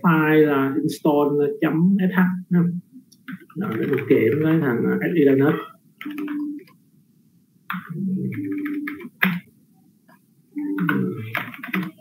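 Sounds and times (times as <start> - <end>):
man speaking: 3.6 - 5.8, 10.8 - 11.4.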